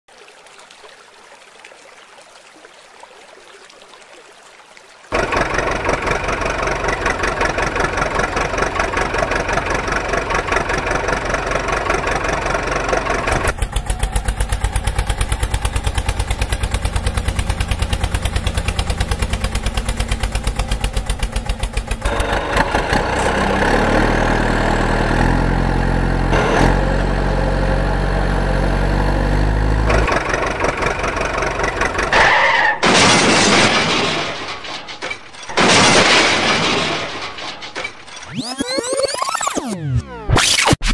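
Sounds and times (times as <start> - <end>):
truck engine running: 5.1 - 32.7
loud crash: 32.1 - 38.0.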